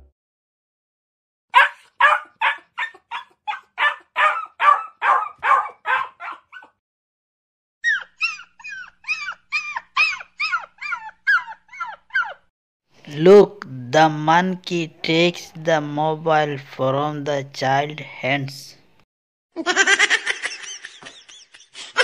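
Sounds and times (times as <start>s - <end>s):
puppy whining and yelping: 1.6s - 6.8s, 7.8s - 12.5s.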